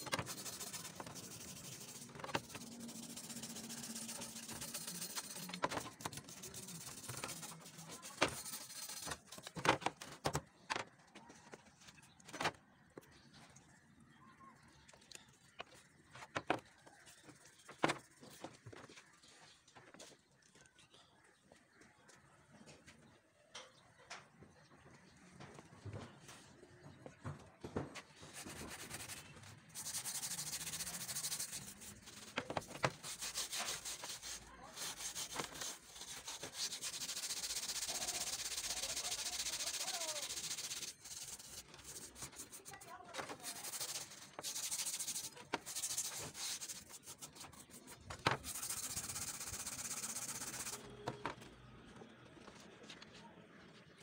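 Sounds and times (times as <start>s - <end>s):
steel wool scrubbing metal: 0.0s - 9.5s, 28.4s - 50.8s.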